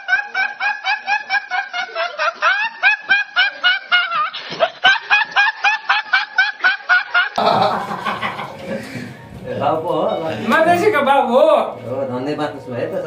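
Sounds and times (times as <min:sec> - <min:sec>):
young man laughing: 0:00.0 - 0:09.0.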